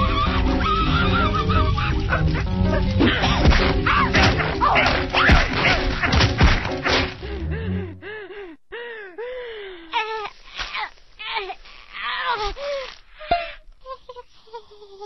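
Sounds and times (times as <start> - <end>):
high bending cries: 0.0 - 3.2
cartoon music: 0.0 - 5.9.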